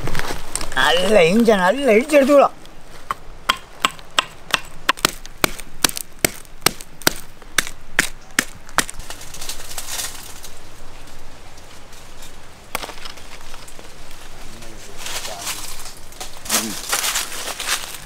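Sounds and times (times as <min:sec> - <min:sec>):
pounding knocks: 0:03.1 - 0:08.9.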